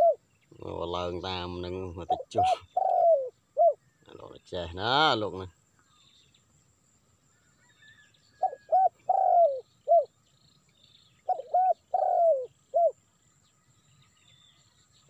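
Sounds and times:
dove cooing: 0:00.0 - 0:03.8, 0:08.4 - 0:10.1, 0:11.2 - 0:13.0.

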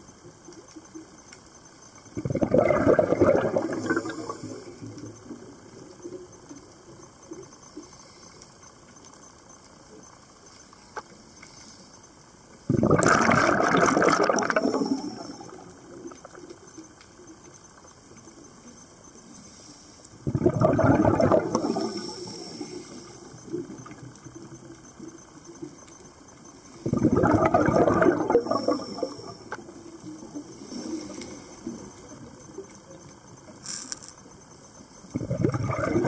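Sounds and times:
faint crackling in water: 0:00.0 - 0:36.0
breath bubbling underwater: 0:02.2 - 0:04.9, 0:12.7 - 0:16.4, 0:20.2 - 0:23.1, 0:26.8 - 0:29.7, 0:35.1 - 0:36.0.

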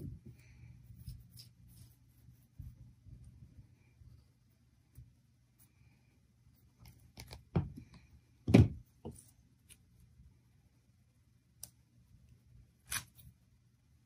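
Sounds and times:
knocks and thumps on tabletop: 0:08.5 - 0:09.2.

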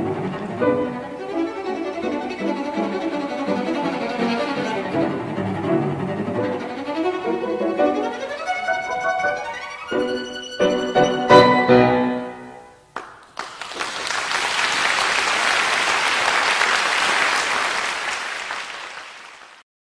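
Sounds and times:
cello and piano chord: 0:00.0 - 0:12.8
audience applause: 0:13.0 - 0:19.6.

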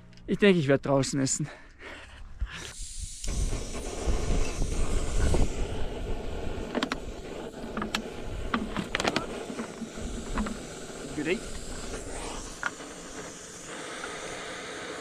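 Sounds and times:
wind buffeting microphone: 0:02.8 - 0:13.2
sharp clicks and knocks: 0:06.7 - 0:07.1, 0:07.7 - 0:10.7.

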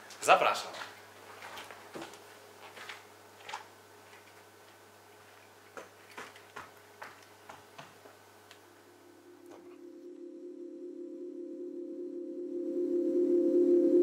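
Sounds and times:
steady low hum: 0:00.8 - 0:14.0
low ringing tone: 0:08.8 - 0:14.0.

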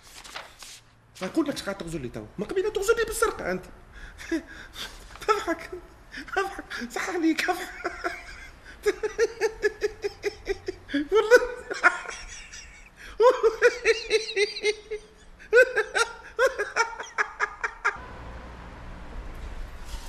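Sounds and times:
low room hum: 0:00.0 - 0:20.0
man laughing hard: 0:04.2 - 0:18.0.

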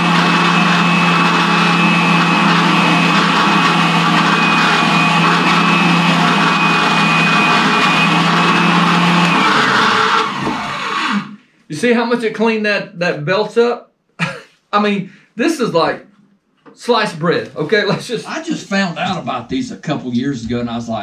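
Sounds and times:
spindle sander humming and whining: 0:00.0 - 0:11.3.

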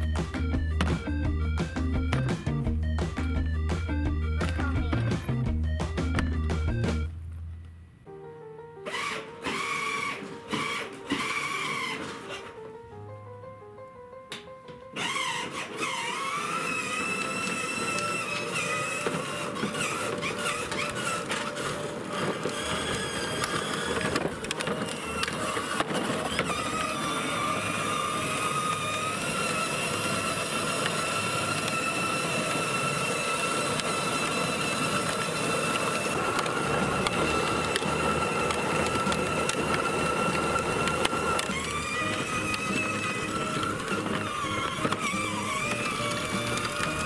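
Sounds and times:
electric motor whine: 0:08.9 - 0:12.6, 0:15.0 - 0:47.0
plastic wheels rumbling on pavement: 0:08.9 - 0:12.7, 0:15.0 - 0:47.0.

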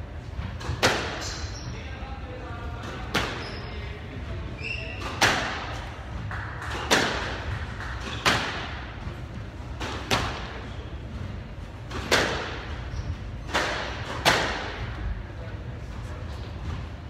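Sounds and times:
steady low hum: 0:00.0 - 0:17.0
squash ball cracking off racquets: 0:05.0 - 0:09.0, 0:09.7 - 0:10.6, 0:11.8 - 0:12.8, 0:13.4 - 0:14.9.

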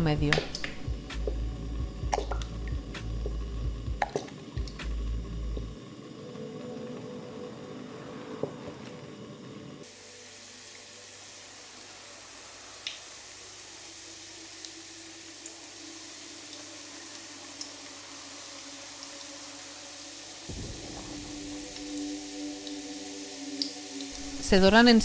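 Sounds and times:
dough sizzling in hot oil: 0:09.0 - 0:25.0
oil trickling into a pan: 0:09.9 - 0:24.3.

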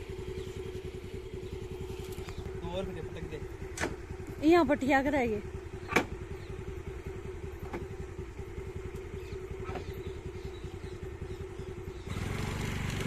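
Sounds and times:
scooter engine running: 0:00.0 - 0:13.0.

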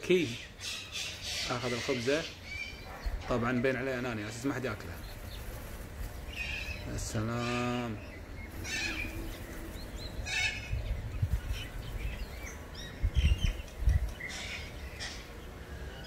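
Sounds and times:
cockatoos calling loudly: 0:00.0 - 0:16.0
small birds chirping: 0:00.0 - 0:16.0.

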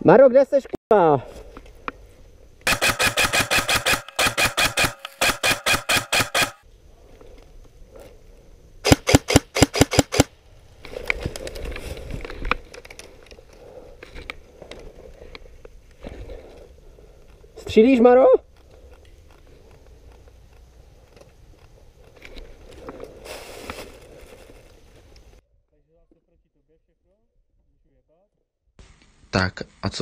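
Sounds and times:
airsoft rifle rapid fire: 0:02.7 - 0:06.6, 0:08.8 - 0:10.3.

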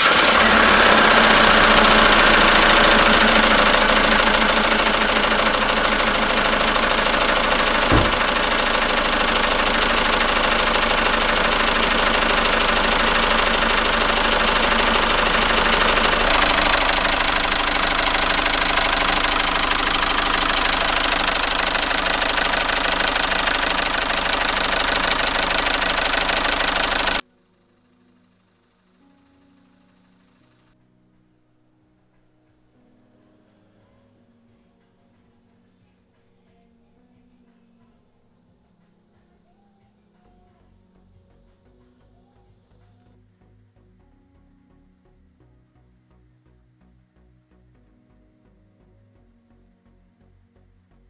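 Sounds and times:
diesel engine idling: 0:00.0 - 0:27.2
rhythmic ticking rattle: 0:00.0 - 0:27.2
sharp knock: 0:07.9 - 0:08.3.

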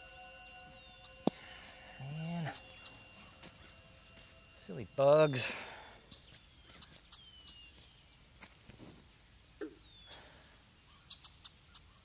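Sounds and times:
bird whistling: 0:00.0 - 0:07.7
high insect chirping: 0:00.0 - 0:12.0.

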